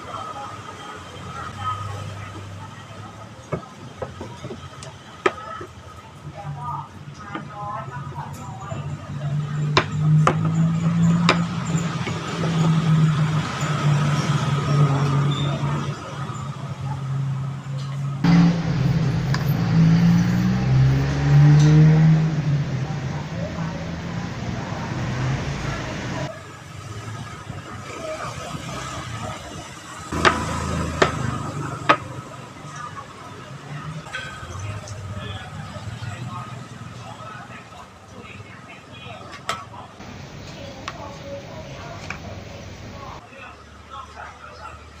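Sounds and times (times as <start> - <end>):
low engine drone: 18.2 - 26.3.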